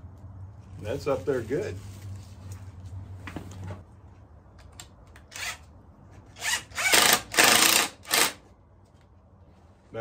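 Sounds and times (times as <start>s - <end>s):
cordless drill into wood: 5.3s - 5.6s, 6.4s - 8.4s.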